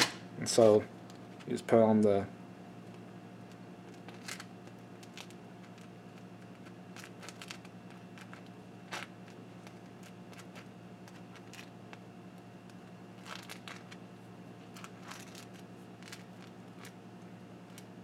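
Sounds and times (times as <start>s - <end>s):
steady low hum: 0.0s - 18.0s.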